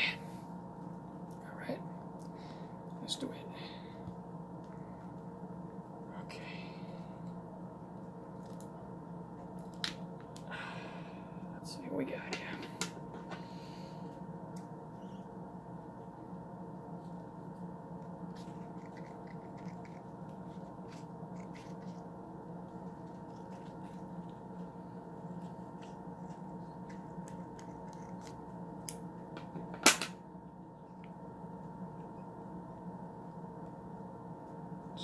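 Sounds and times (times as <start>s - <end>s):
steady hum: 0.0s - 35.0s.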